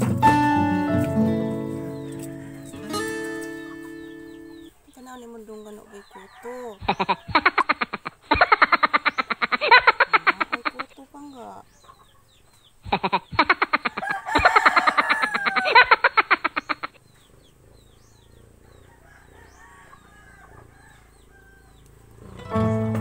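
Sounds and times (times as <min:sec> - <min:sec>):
music: 0:00.0 - 0:04.7, 0:22.3 - 0:23.0
faint bird chirps: 0:01.8 - 0:14.1
chicken cackling: 0:01.8 - 0:22.6.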